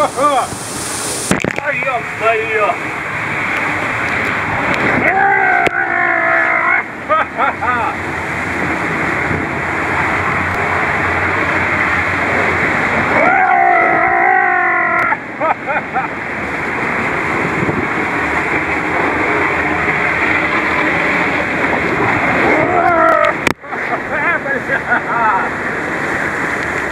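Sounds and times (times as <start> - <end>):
water rushing down tube slide: 0.0 - 26.9
person crying out: 5.0 - 7.8, 13.1 - 15.3, 22.5 - 23.4.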